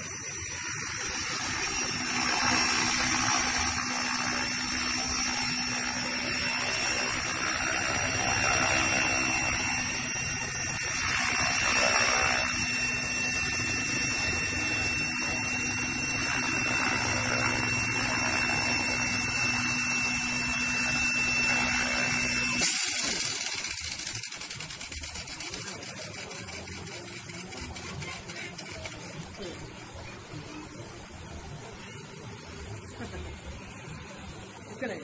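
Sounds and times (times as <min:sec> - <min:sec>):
rc helicopter rotors whining: 0:00.0 - 0:35.0.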